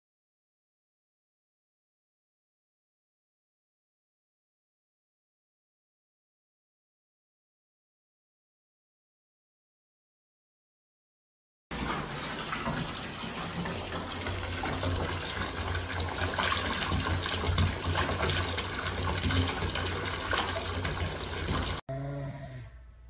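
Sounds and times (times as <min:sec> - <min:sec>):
water pouring into bathtub: 0:11.7 - 0:21.8.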